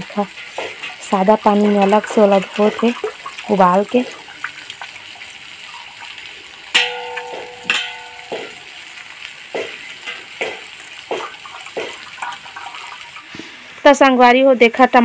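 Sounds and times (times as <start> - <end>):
water splashing and dripping: 0.0 - 13.9
metal clink on steel pot: 6.7 - 8.8.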